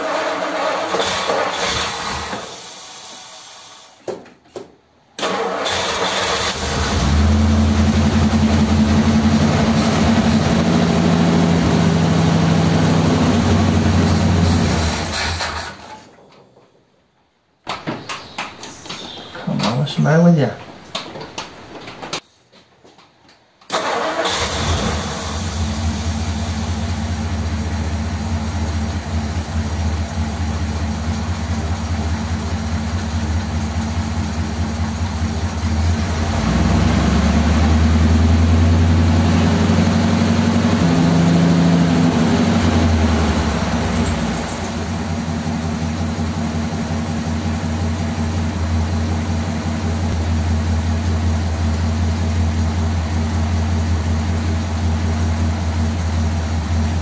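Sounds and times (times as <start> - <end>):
car engine idling and revving: 5.7 - 15.4, 24.0 - 57.0.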